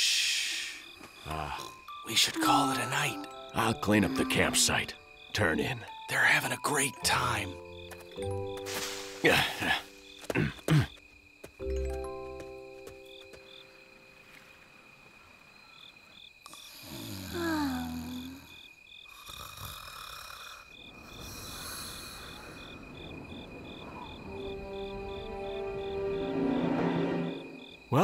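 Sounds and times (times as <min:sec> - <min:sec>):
crickets chirping: 0:00.0 - 0:28.0
man snoring: 0:16.6 - 0:18.4, 0:19.1 - 0:20.7.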